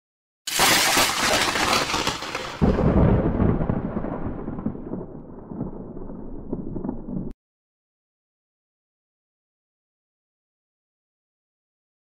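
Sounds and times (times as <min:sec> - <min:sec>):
crackling crack: 0:00.5 - 0:07.4
deep rolling boom: 0:02.6 - 0:07.4.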